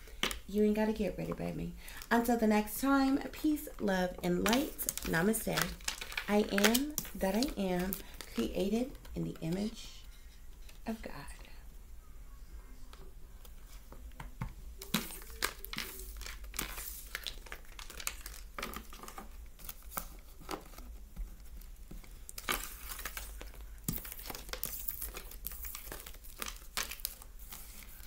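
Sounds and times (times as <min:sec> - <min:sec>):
cards clicking and rustling: 0:04.4 - 0:09.7, 0:13.4 - 0:28.0.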